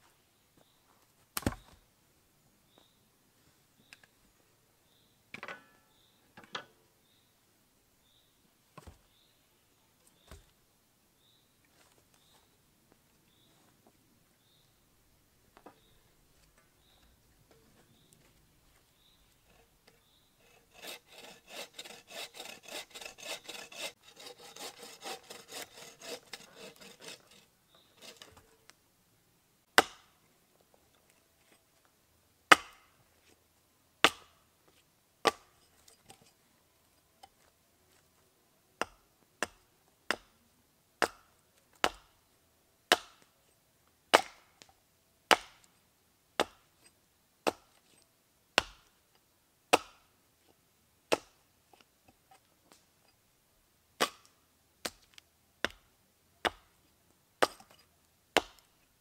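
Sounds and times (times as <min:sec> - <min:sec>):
hatchet chopping wood: 0:01.4 - 0:01.7, 0:29.8 - 0:30.1, 0:32.5 - 0:32.9, 0:34.0 - 0:34.3, 0:35.2 - 0:35.5, 0:41.0 - 0:42.1, 0:42.9 - 0:43.2, 0:44.2 - 0:44.4, 0:45.3 - 0:45.7, 0:46.4 - 0:46.6, 0:48.6 - 0:48.9, 0:49.7 - 0:50.0, 0:51.1 - 0:51.4, 0:54.0 - 0:56.7, 0:57.4 - 0:57.7, 0:58.4 - 0:58.7
hand saw cutting wood: 0:19.4 - 0:28.5.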